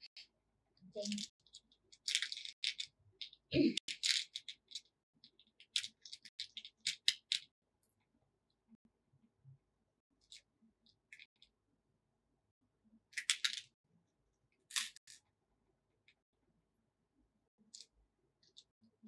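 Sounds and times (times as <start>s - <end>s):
beads rattling and clicking: 1.0s - 7.5s, 13.2s - 13.8s, 14.7s - 15.2s.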